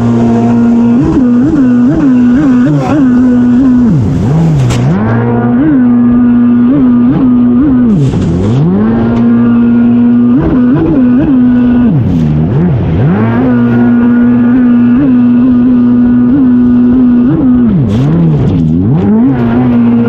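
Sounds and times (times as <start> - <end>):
jet ski engine revving: 0.0 - 20.0.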